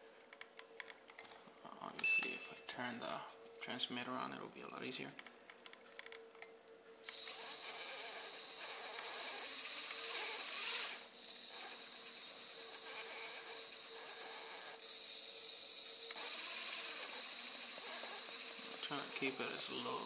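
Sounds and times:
electric motor high-pitched whine: 0:07.0 - 0:20.0.

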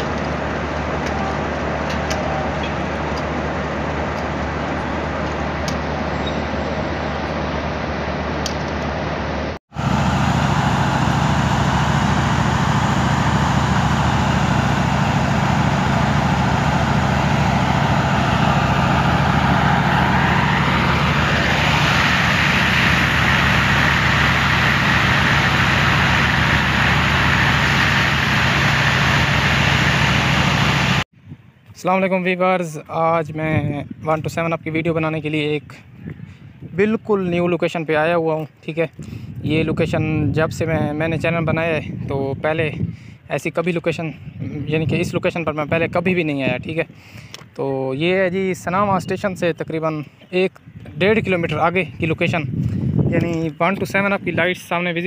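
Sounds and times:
diesel locomotive engine running: 0:00.0 - 0:31.1.

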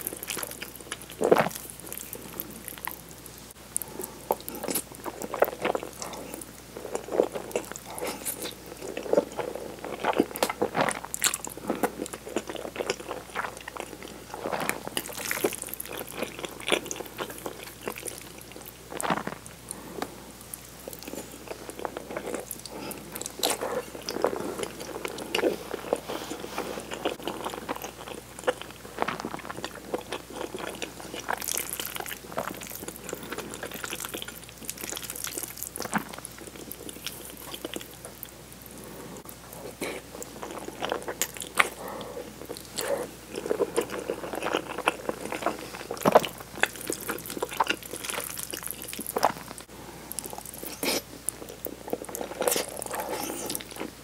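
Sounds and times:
chewing with wet smacks: 0:03.8 - 0:19.8, 0:27.0 - 0:38.3, 0:39.2 - 0:54.0.

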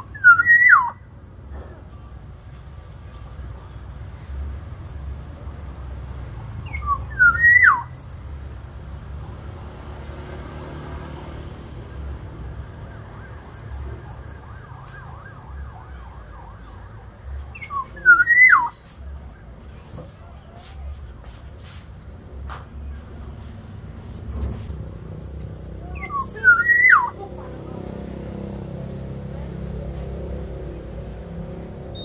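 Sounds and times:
bird whistling call: 0:00.0 - 0:01.0, 0:06.6 - 0:08.0, 0:17.6 - 0:18.8, 0:26.0 - 0:27.2.

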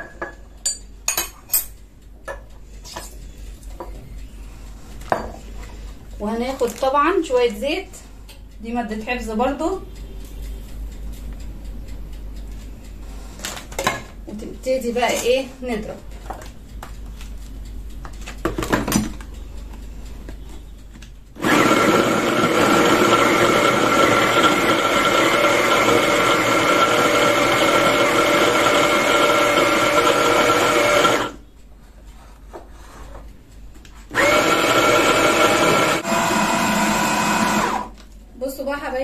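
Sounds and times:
electric food chopper motor: 0:21.4 - 0:31.4, 0:34.1 - 0:38.0.

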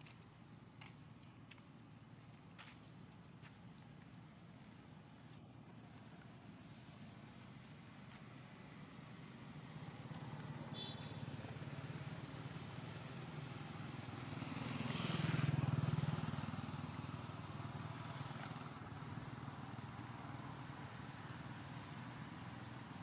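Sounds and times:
vehicle passing by: 0:12.6 - 0:19.7.

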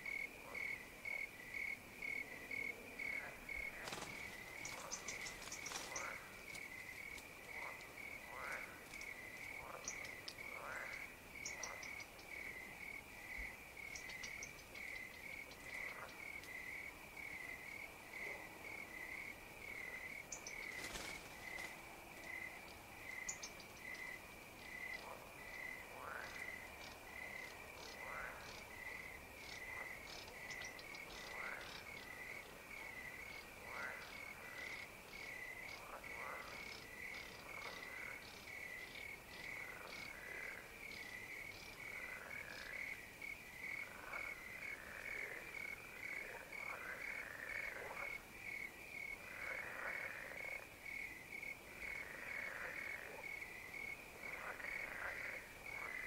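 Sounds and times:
crickets chirping: 0:00.0 - 0:56.0
frogs calling: 0:00.0 - 0:56.0.

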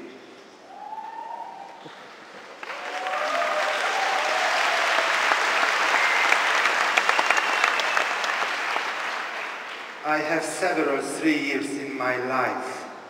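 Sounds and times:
large audience applauding: 0:01.8 - 0:10.0.

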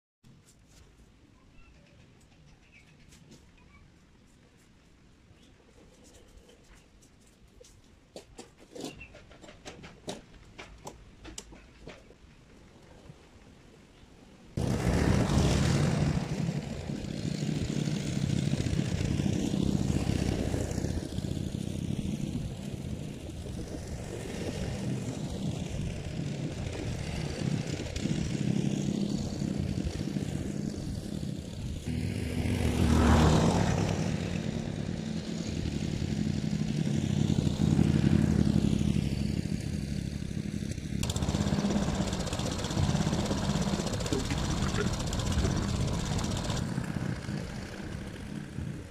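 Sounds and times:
lawn mower engine running: 0:14.6 - 0:48.9.

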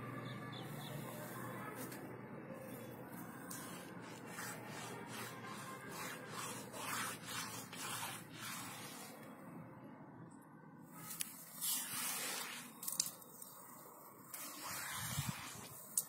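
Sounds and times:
fingers scratching rough wet cement: 0:03.1 - 0:09.3, 0:11.1 - 0:13.2, 0:14.3 - 0:16.0.

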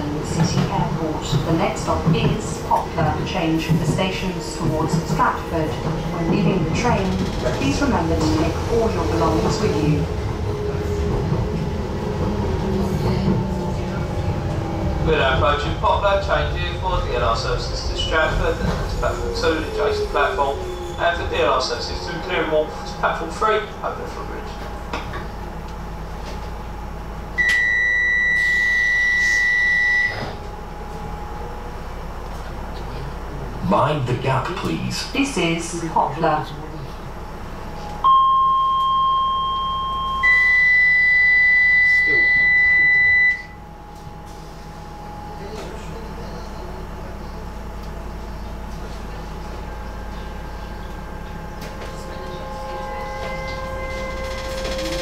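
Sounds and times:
train hum: 0:00.0 - 0:55.0
steady tones: 0:01.5 - 0:28.2
high electronic beep: 0:38.0 - 0:43.6.

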